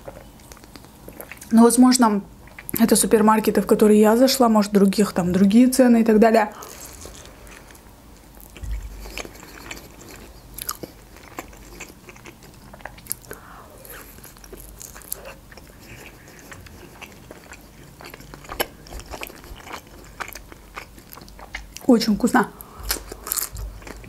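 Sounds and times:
person chewing crunchy food: 0.0 - 1.5, 6.6 - 21.9, 22.6 - 24.0.

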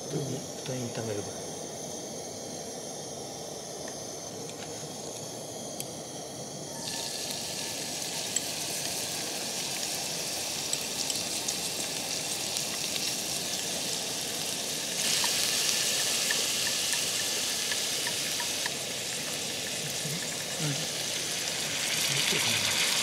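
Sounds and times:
garlic sizzling in frying pan: 6.7 - 23.0
chopsticks stirring in pan: 15.0 - 21.0.

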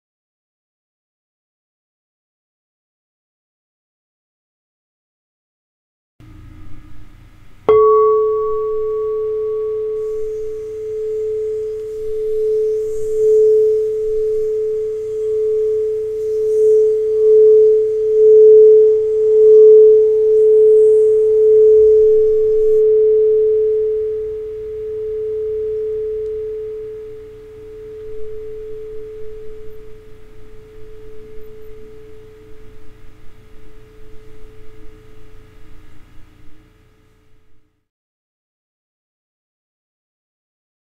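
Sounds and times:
crystal singing bowl ringing: 6.2 - 36.0.

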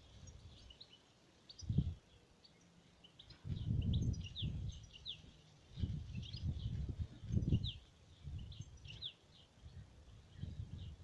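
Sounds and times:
small birds chirping: 0.0 - 11.0
wind rumbling on microphone: 1.5 - 2.2, 3.2 - 11.0.

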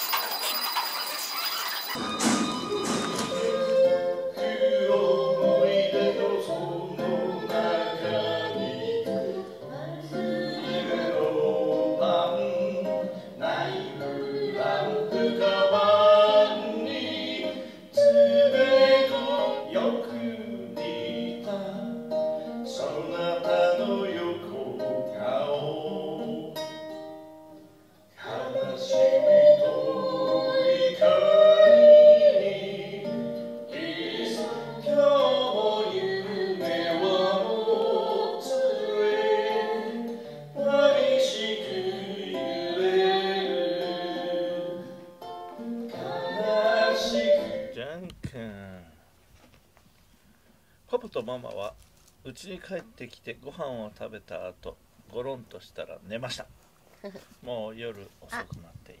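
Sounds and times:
acoustic guitar strumming: 0.0 - 47.8
man singing: 18.0 - 22.0, 22.7 - 26.6.

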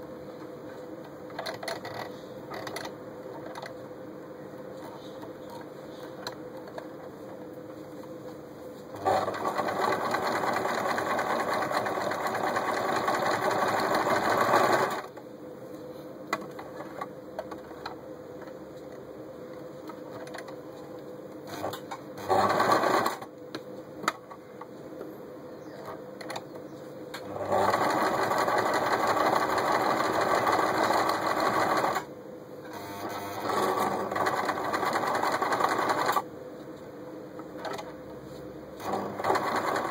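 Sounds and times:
sewing machine stitching: 9.0 - 15.1, 21.5 - 23.2, 27.2 - 32.1, 32.7 - 36.2, 38.8 - 39.9.

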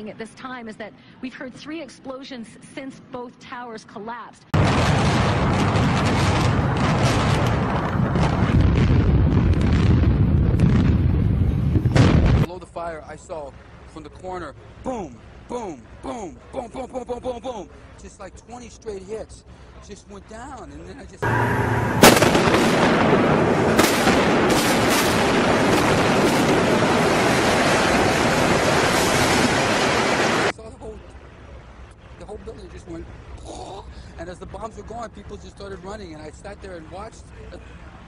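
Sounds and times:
sharp cracks and bangs: 4.6 - 11.1, 21.2 - 30.5
building collapsing rumble: 4.6 - 12.5, 21.2 - 30.5.

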